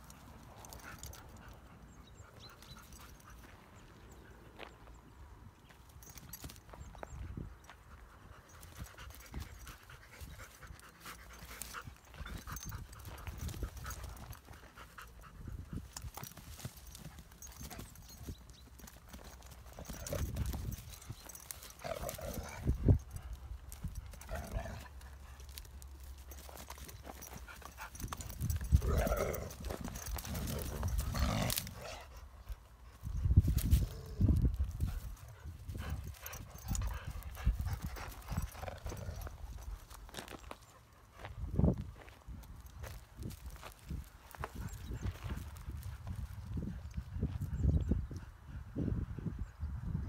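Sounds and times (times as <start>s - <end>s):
dogs scuffling on grass: 8.5s - 32.1s, 33.0s - 46.7s
dogs growling: 21.6s - 22.8s, 24.2s - 25.0s, 28.6s - 32.2s, 36.6s - 39.6s.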